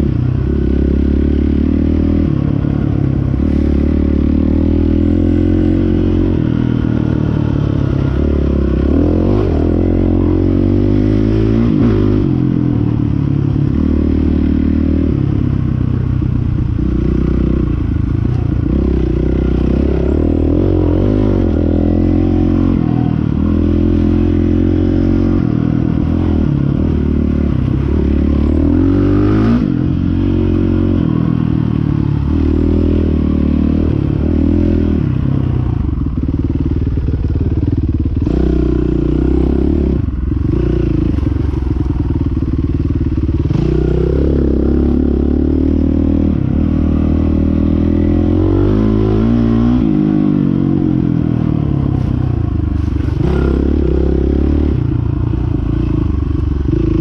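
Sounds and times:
dirt bike engine revving: 43.2 - 52.1.

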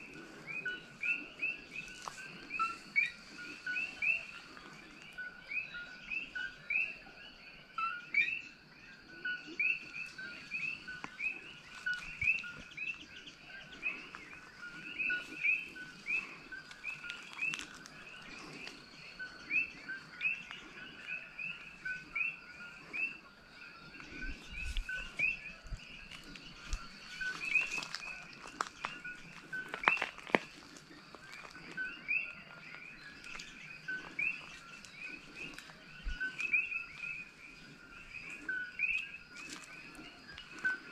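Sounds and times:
frogs chirping in chorus: 0.0 - 40.9.

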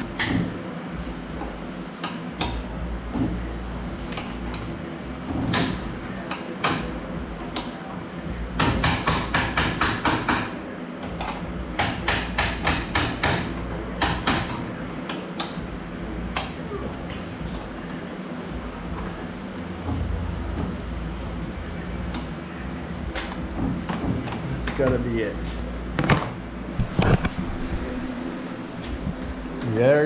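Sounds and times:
tool tapping on metal: 8.6 - 15.6.

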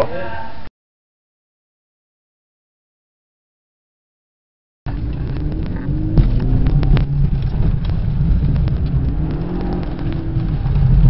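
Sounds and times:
car engine revving: 4.9 - 11.0.

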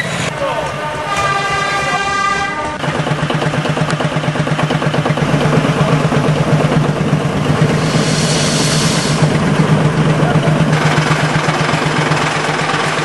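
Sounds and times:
locomotive engine running: 0.0 - 13.0
hiss: 7.6 - 9.5.

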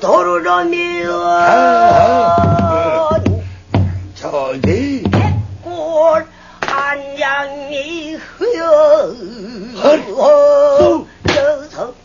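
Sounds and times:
person singing with vibrato: 0.0 - 3.5, 4.2 - 12.0
barrel drum strokes: 1.9 - 5.7.

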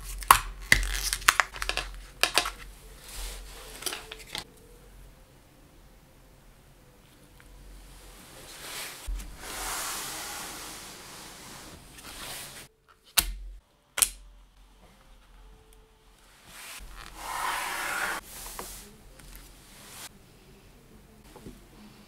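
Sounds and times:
gloved hands rustling: 0.0 - 4.5.

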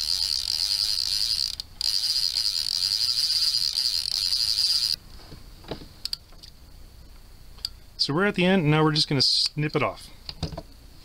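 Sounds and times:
fishing reel drag clicking buzz: 0.0 - 5.0.

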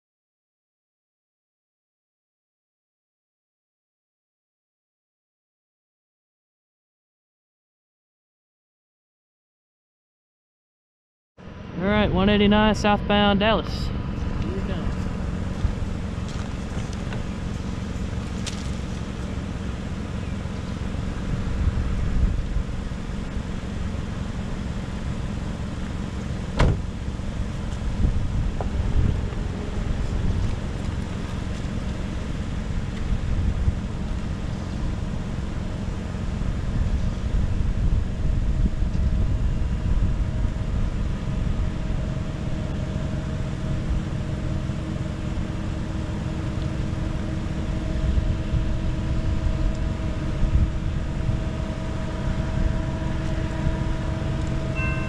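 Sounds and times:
road traffic rumble: 11.4 - 55.0.

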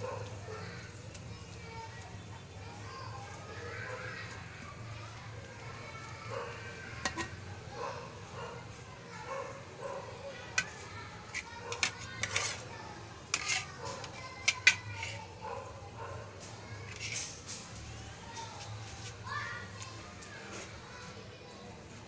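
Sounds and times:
metal spatula scraping wok: 7.0 - 7.4, 10.6 - 12.7, 13.3 - 15.3, 16.9 - 17.7.

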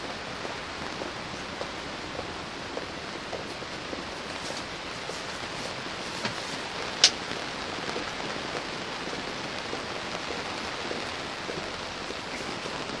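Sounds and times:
rain on tent fabric: 0.0 - 13.0.

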